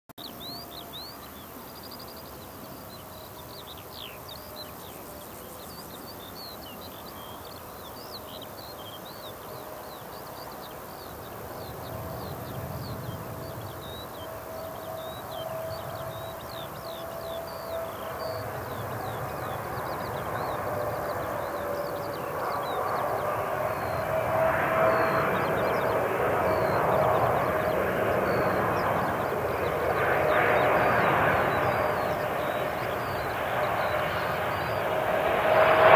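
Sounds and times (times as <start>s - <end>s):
jet engine roar: 9.2s - 35.9s.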